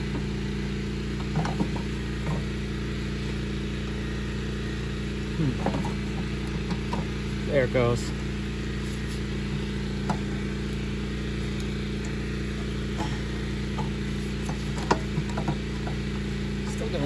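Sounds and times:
steady background hum: 0.0 - 17.0
metallic clicks of engine parts: 12.9 - 16.2.

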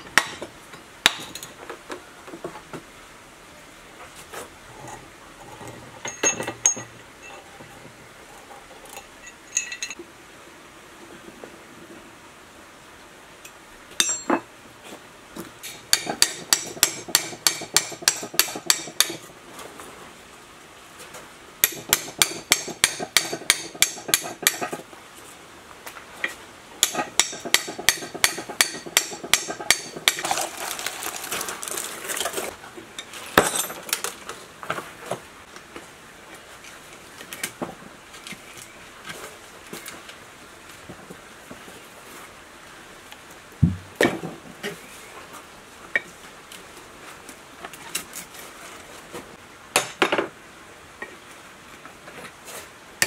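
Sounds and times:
hammer striking metal: 15.9 - 19.2, 21.6 - 24.6, 26.8 - 30.2.

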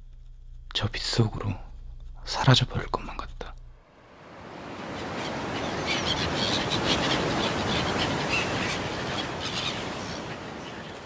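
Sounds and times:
gulls calling: 4.1 - 11.0.

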